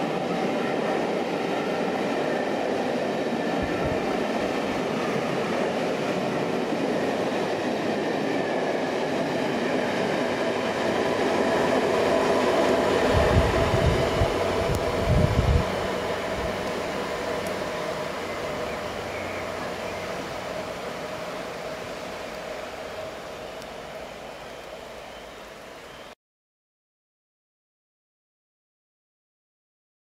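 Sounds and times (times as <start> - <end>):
train wheels rumbling on rails: 0.0 - 26.1.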